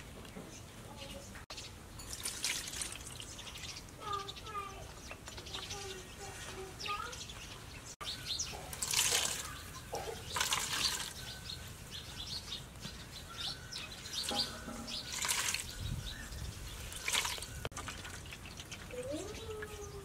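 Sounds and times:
liquid splashing into steel bowl: 0:02.0 - 0:03.3, 0:08.7 - 0:09.5, 0:10.2 - 0:11.2, 0:14.2 - 0:15.7, 0:16.9 - 0:18.3.

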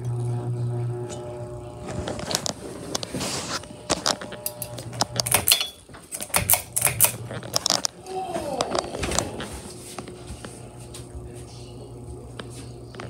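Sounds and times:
ceiling fan motor hum: 0:00.0 - 0:13.0
fan clicks and rattles: 0:03.8 - 0:08.0.

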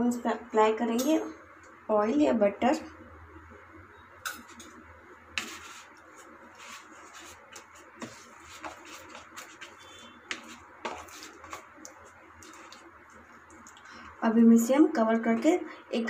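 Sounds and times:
hands patting dough in bowl: 0:05.4 - 0:13.8.

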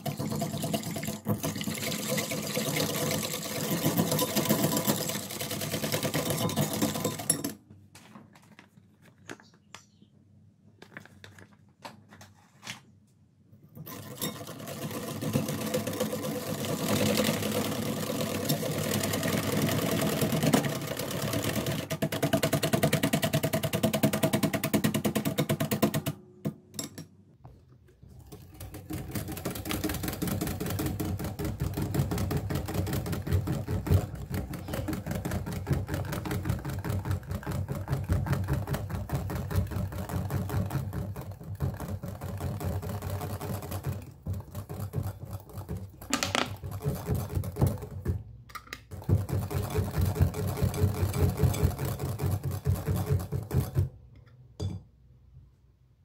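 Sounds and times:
whisk rattling in glass bowl: 0:00.0 - 0:07.6, 0:28.4 - 0:48.2, 0:49.0 - 0:53.9.

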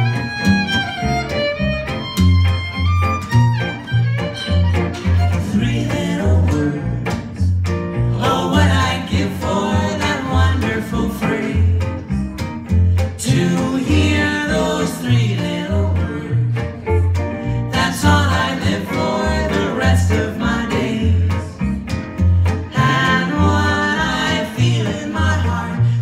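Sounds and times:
fiddle: 0:00.0 - 0:07.2, 0:15.1 - 0:26.0
guitar chords: 0:00.0 - 0:26.0
upright bass: 0:00.0 - 0:26.0
woman singing: 0:08.2 - 0:12.0, 0:13.2 - 0:16.8, 0:17.7 - 0:21.6, 0:22.7 - 0:26.0.

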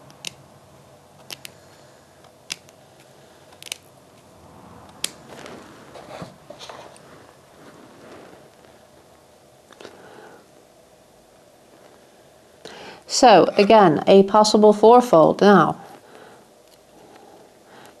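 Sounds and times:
fabric scratching and rustling: 0:04.2 - 0:09.6, 0:11.5 - 0:12.3.

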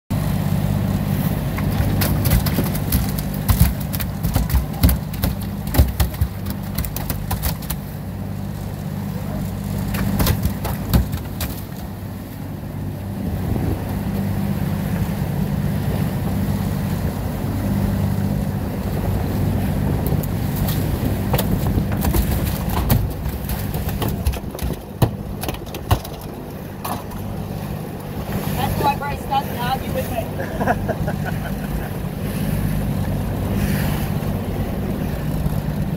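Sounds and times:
boat motor running: 0:00.1 - 0:35.9
choppy water slapping: 0:00.1 - 0:35.9
knocks and thumps on deck: 0:02.0 - 0:07.8, 0:10.0 - 0:11.7.

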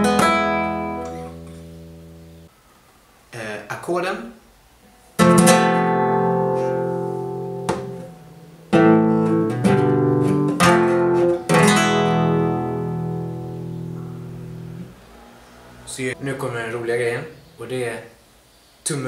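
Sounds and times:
nylon-string guitar strumming: 0:00.0 - 0:02.5, 0:05.2 - 0:15.0.

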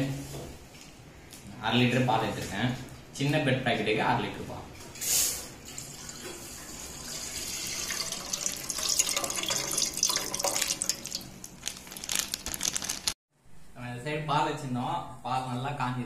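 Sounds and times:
milk pouring into a pot: 0:05.7 - 0:12.0.

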